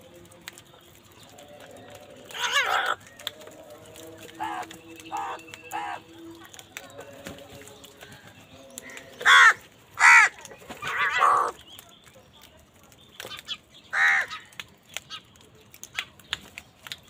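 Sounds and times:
crows cawing harshly: 2.3s - 3.1s, 4.2s - 6.1s, 8.8s - 11.6s, 13.9s - 14.5s.

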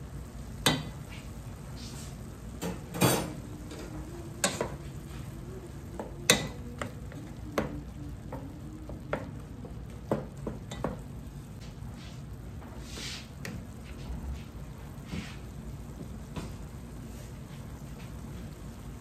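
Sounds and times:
meat sizzling in a pot: 0.0s - 13.7s
spatula knocking on pot: 5.9s - 11.1s
wooden spatula scraping: 11.6s - 15.5s.

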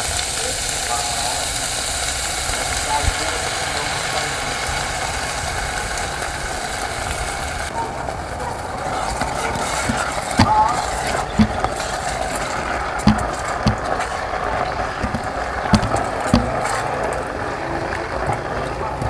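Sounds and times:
food sizzling: 0.0s - 19.0s
spatula knocking against pot: 11.4s - 11.8s, 13.0s - 14.0s, 15.0s - 16.8s.

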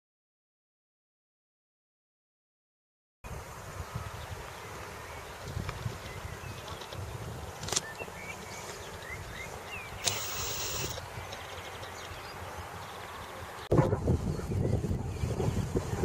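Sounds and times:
low wind rumble: 8.2s - 16.0s
wind gust hitting microphone: 13.7s - 16.0s.

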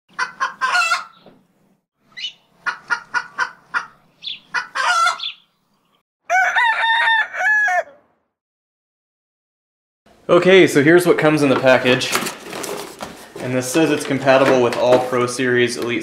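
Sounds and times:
chickens clucking: 0.1s - 1.4s, 2.2s - 5.5s
rooster crowing: 4.6s - 5.3s, 6.2s - 8.2s.

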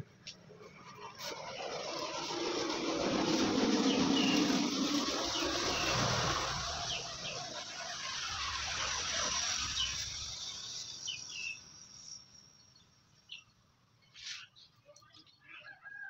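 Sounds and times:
steady rushing noise: 0.0s - 12.3s
birds chirping: 3.7s - 15.8s.

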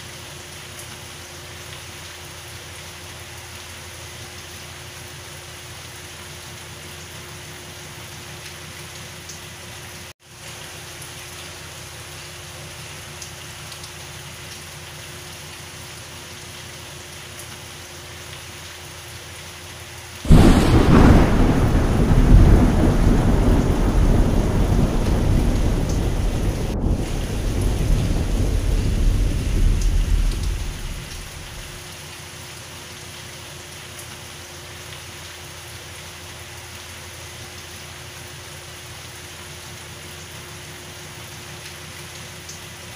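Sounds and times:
steady rain falling: 0.0s - 42.9s
thunder crack and rumble: 20.3s - 31.8s.

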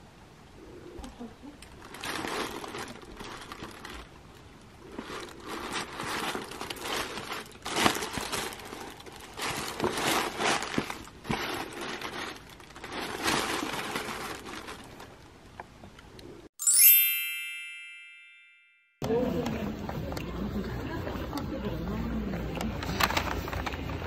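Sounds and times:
tissue paper rustling: 1.8s - 4.1s, 4.8s - 15.2s, 22.8s - 24.0s.

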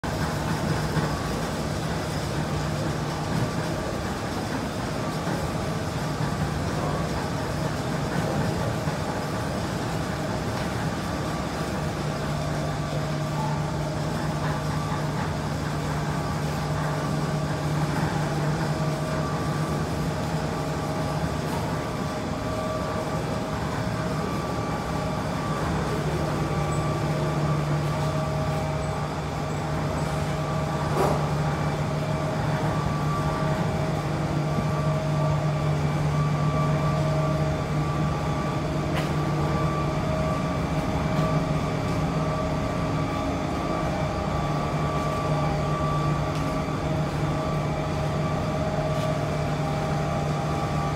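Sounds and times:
machinery humming: 0.0s - 50.9s.

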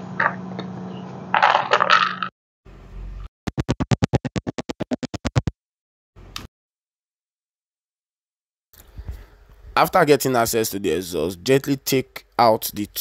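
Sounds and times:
rapid electronic pulsing: 3.5s - 5.6s.

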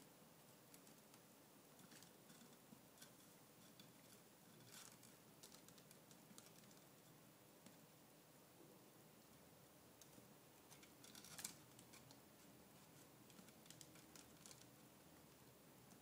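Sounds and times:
soft rustle: 0.0s - 7.9s, 9.2s - 16.0s
claws clicking on canvas: 12.9s - 16.0s.

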